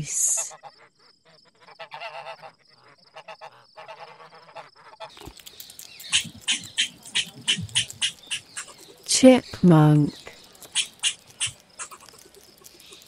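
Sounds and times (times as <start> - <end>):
goose honking: 1.6 - 2.6, 3.2 - 5.1
squirrel chirps: 5.1 - 13.0.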